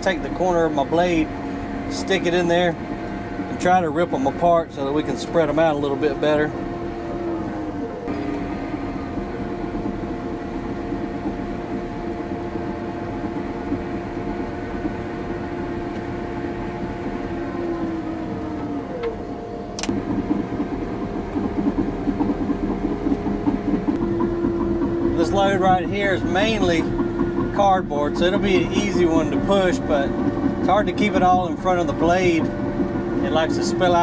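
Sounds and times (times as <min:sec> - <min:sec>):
bulldozer diesel engine running: 0:00.0 - 0:34.0
sharp click: 0:19.8 - 0:20.0.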